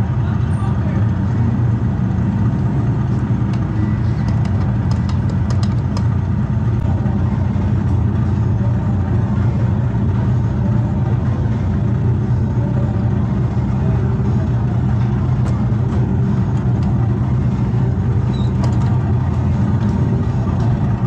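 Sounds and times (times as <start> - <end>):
electric go-kart rumble: 0.0 - 21.0.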